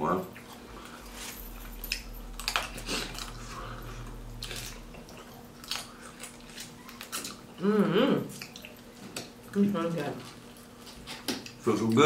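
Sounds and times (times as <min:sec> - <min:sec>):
wet squishing and chewing: 0:00.2 - 0:12.0.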